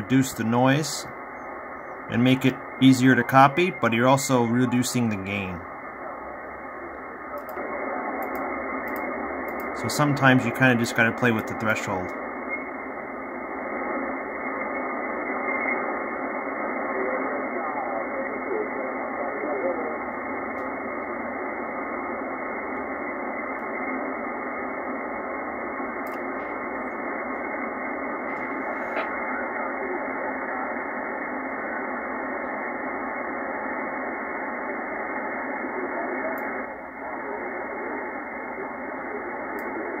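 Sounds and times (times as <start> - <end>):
radio band noise hiss: 0.0 - 40.0
faint radio voice: 2.0 - 12.8, 14.0 - 23.2, 28.1 - 40.0.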